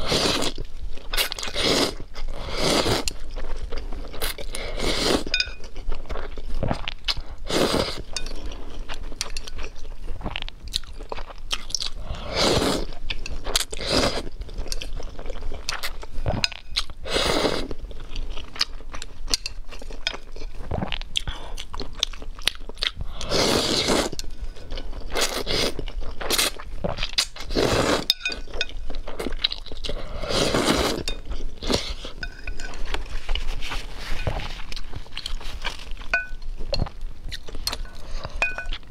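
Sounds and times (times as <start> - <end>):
chewing: 0.0 - 17.0, 17.6 - 38.9
noodles being slurped: 1.2 - 3.2, 25.2 - 28.2, 29.2 - 36.0.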